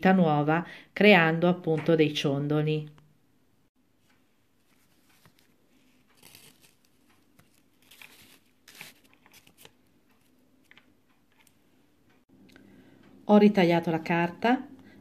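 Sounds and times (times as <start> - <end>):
paper sheets rustling: 4.6 - 9.8.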